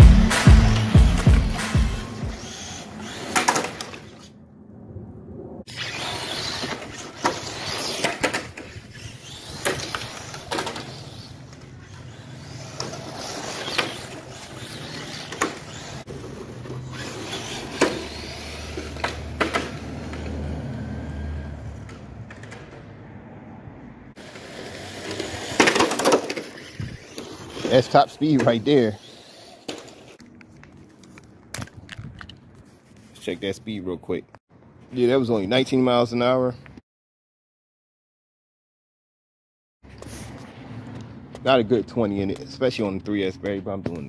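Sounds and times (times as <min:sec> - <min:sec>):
tyre noise on concrete: 0:00.0 - 0:04.3, 0:05.7 - 0:21.0, 0:24.2 - 0:33.2
rc car motor whine: 0:00.6 - 0:04.4, 0:05.7 - 0:21.5, 0:24.2 - 0:30.2.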